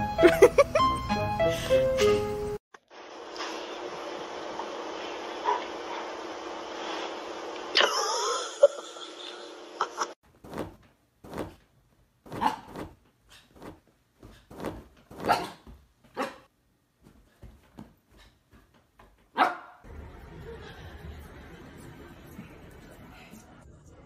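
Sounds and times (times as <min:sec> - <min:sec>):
dog pawing at sofa cushions: 0:10.3 - 0:11.6, 0:12.2 - 0:15.9.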